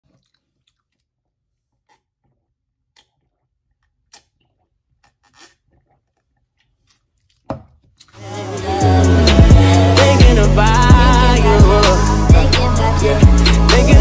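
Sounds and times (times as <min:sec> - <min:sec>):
sipping and swallowing: 0:00.0 - 0:08.2.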